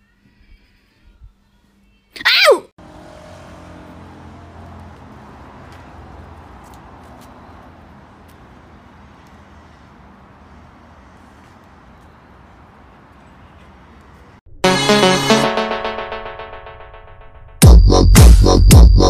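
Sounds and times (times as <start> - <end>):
traffic rumble: 2.8 - 14.4.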